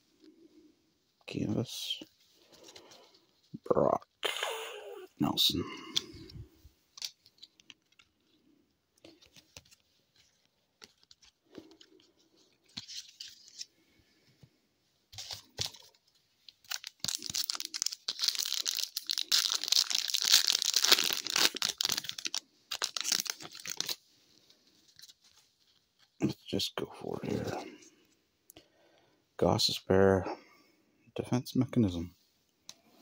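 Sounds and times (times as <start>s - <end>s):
plastic wrapper crinkling and tearing: 6.9s - 12.0s, 15.2s - 24.0s.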